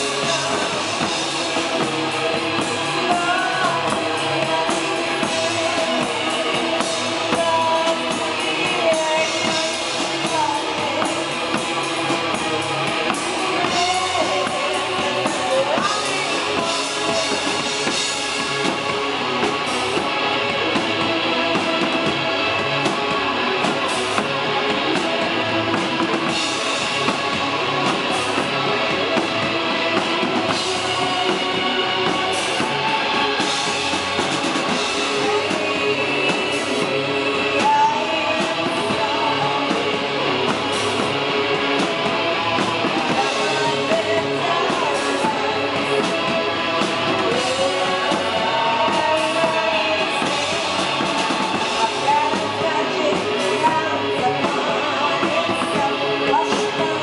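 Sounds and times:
woman singing: 0.0s - 1.2s, 2.4s - 11.8s, 13.1s - 17.8s, 35.1s - 40.4s, 43.0s - 57.0s
drum kit: 0.0s - 57.0s
electric guitars: 0.0s - 57.0s.

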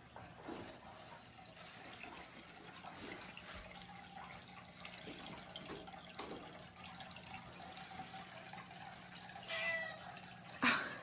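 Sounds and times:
toilet paper rustling: 0.0s - 8.5s
low pump hum: 0.0s - 11.0s
water trickling from fountain: 0.0s - 11.0s.

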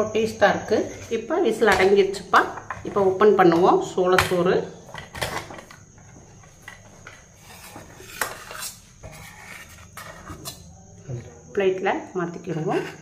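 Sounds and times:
spoon clinking and scraping pot: 6.6s - 10.7s, 12.4s - 13.0s.

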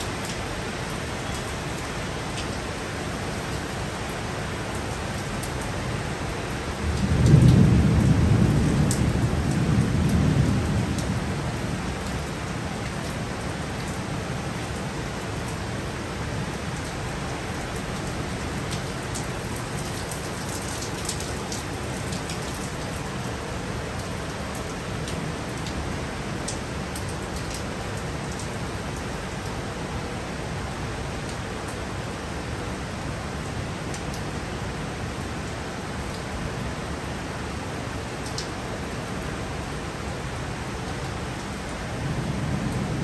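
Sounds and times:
heavy rain falling: 0.0s - 43.0s
thunder rumbling: 6.8s - 12.1s.

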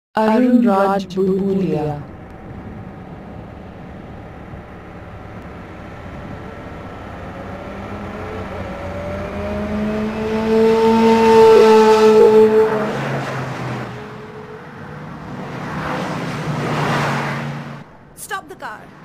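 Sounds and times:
low steady tone: 0.2s - 10.3s
noisy rush with rising tone: 0.2s - 19.0s.

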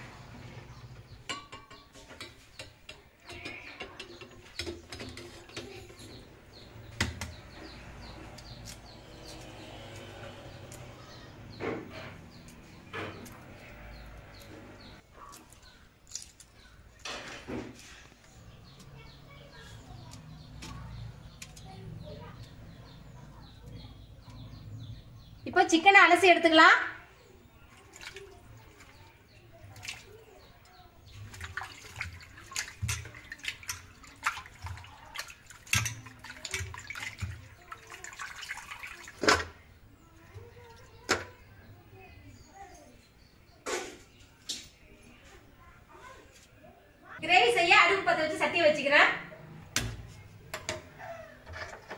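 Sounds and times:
birds chirping: 0.0s - 51.9s
water splashing in steel bowl: 27.7s - 39.7s
water pouring: 31.1s - 39.6s.

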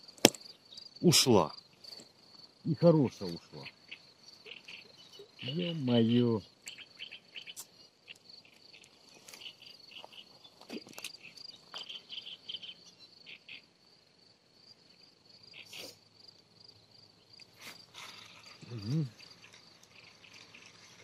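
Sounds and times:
insect trilling and chirping: 0.0s - 21.0s.

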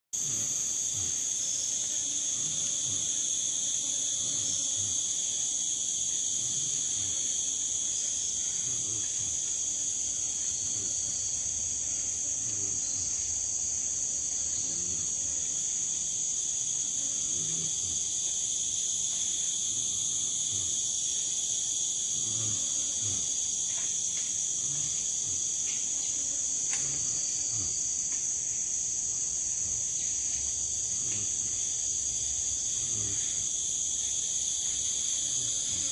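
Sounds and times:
forest insects droning: 0.2s - 35.9s.

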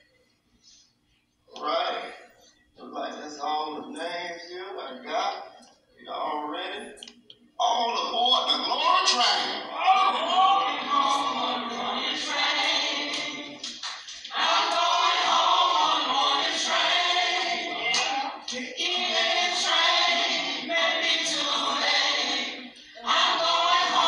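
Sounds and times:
choir singing: 9.6s - 24.0s.

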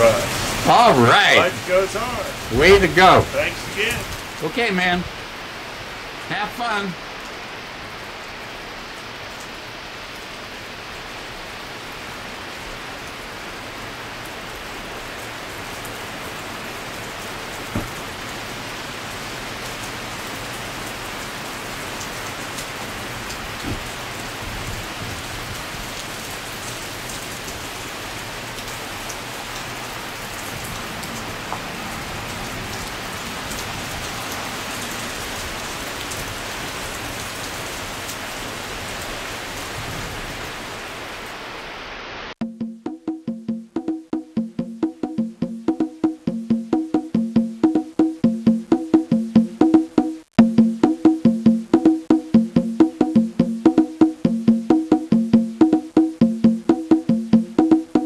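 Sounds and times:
rain on gravel: 0.0s - 42.4s.

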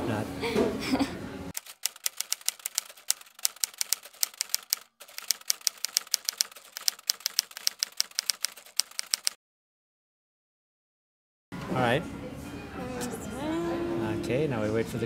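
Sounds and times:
typewriter key clacks: 1.6s - 9.4s.

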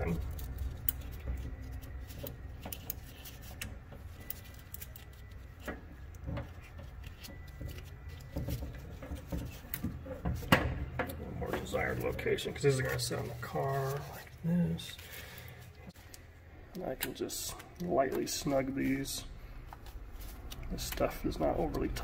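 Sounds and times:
wire terminals clicking and rattling: 0.0s - 13.1s.

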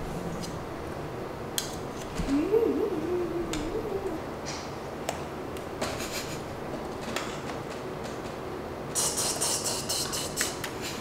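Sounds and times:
low wavering hum: 2.1s - 4.6s.

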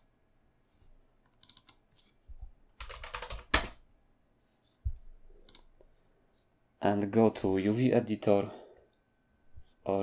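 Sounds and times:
typing on computer keyboard: 1.4s - 1.8s, 2.8s - 3.8s.

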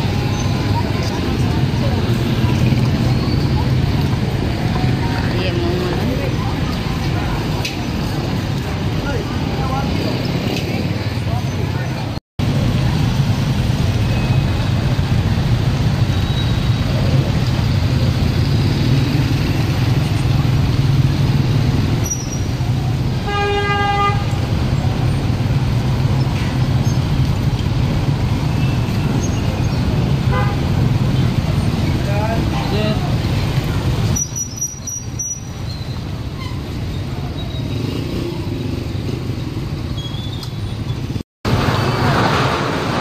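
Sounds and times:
motorcycle engines running: 0.0s - 43.0s
vehicle horn: 23.2s - 24.3s, 30.3s - 30.6s.

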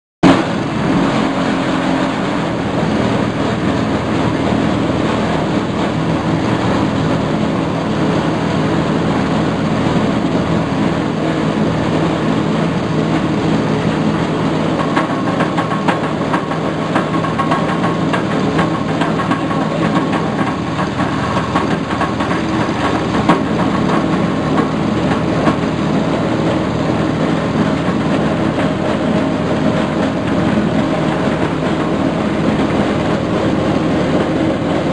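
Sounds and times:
shredder rapid ticking clatter: 14.1s - 34.9s.

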